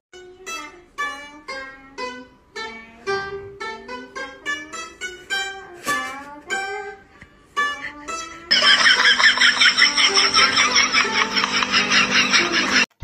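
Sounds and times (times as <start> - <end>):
plucked lute melody: 0.2 - 8.5.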